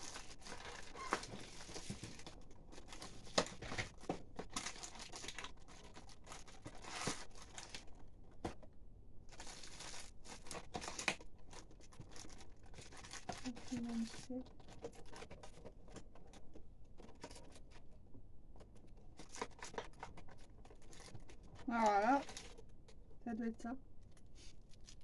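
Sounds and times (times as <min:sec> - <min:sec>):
cardboard tearing: 0:00.0 - 0:07.9, 0:09.3 - 0:15.6
paper crinkling: 0:00.0 - 0:08.6, 0:09.3 - 0:18.0, 0:18.6 - 0:23.0, 0:24.0 - 0:25.0.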